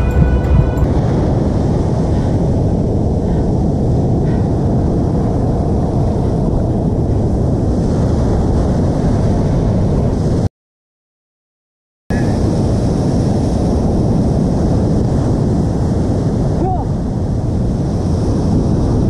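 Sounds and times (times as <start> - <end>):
wind buffeting microphone: 0.0 - 10.5, 12.2 - 19.0
surf breaking on a beach: 12.1 - 19.0.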